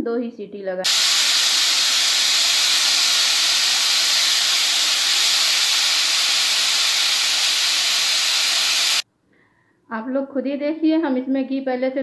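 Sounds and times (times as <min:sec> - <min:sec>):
pressure cooker steam hissing: 0:00.8 - 0:09.0.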